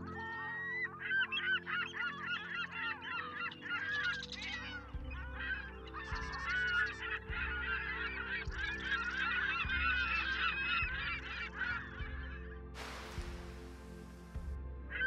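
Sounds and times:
flock of birds calling: 0.0s - 15.0s
low steady drone: 4.8s - 15.0s
burst of hiss: 12.8s - 14.5s.

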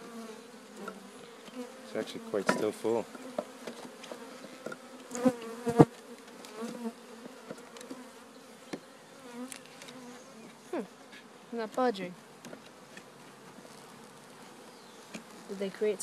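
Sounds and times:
honeybees buzzing: 0.0s - 16.0s
hive tool knocking on can: 2.4s - 5.9s.

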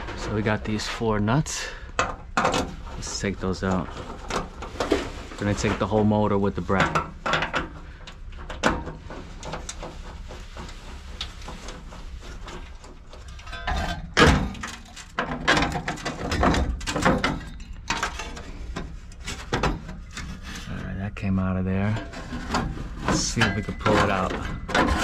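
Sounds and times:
steady low hum: 0.0s - 25.0s
metal clicking and clanking: 6.7s - 20.7s, 21.8s - 25.0s.

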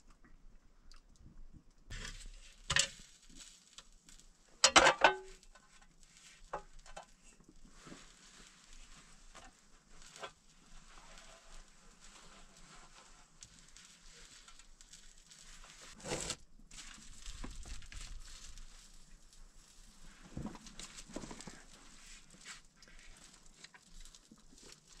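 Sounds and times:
objects knocking and clattering: 4.6s - 5.7s.

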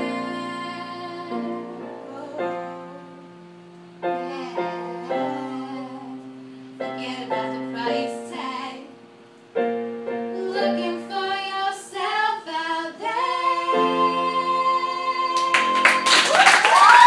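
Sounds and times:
girls singing: 0.0s - 3.4s, 4.0s - 9.2s, 10.2s - 17.0s
digital piano chords: 0.0s - 16.1s
clapping and whooping: 15.4s - 17.0s.

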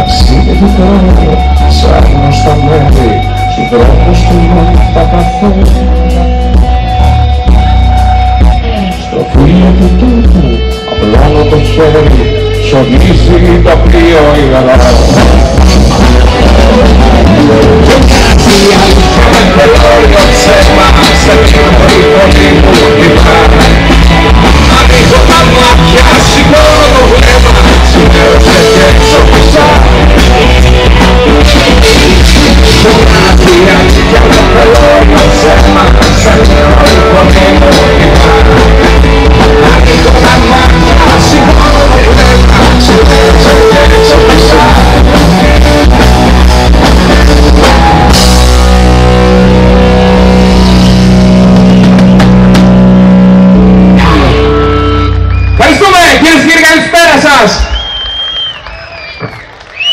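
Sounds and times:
person singing: 0.0s - 15.5s, 16.2s - 46.1s
drum kit: 0.0s - 56.1s
bass guitar: 0.0s - 59.9s
distorted electric guitars: 0.0s - 59.9s.

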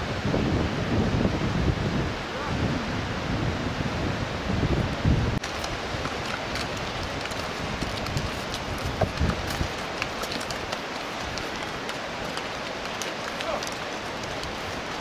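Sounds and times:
hooves clattering on rocky trail: 5.4s - 15.0s.

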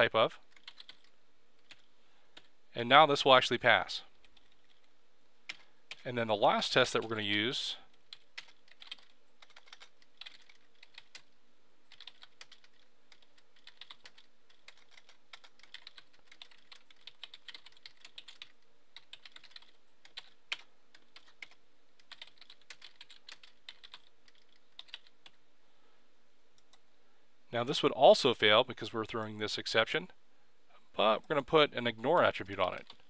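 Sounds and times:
computer keyboard typing: 0.5s - 2.5s, 4.1s - 4.9s, 5.5s - 6.0s, 7.9s - 25.4s, 32.3s - 33.0s.

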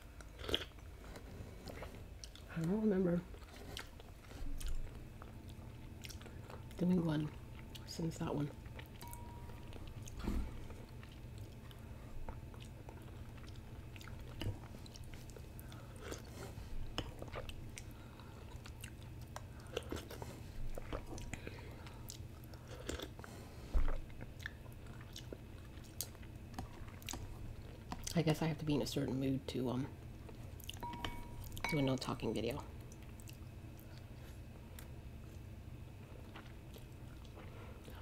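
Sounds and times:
person chewing noodles: 0.0s - 2.5s, 3.3s - 6.8s, 8.6s - 28.1s, 30.2s - 31.6s, 32.8s - 38.0s.

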